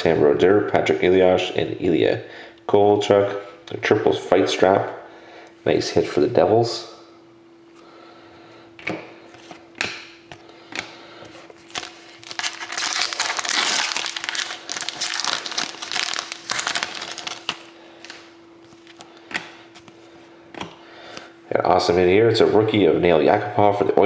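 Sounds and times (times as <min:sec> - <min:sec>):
foil wrapper tearing and crinkling: 0:11.6 - 0:18.2.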